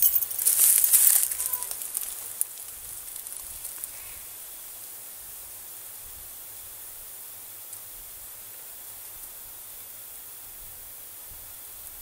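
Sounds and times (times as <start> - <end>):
leaf litter rustling: 0.0 - 4.2
steady hiss: 0.0 - 12.0.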